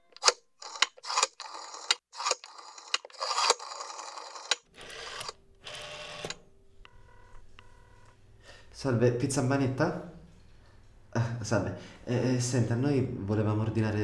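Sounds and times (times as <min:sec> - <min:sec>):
rotary phone dial whirring and clicking: 0:00.1 - 0:06.4.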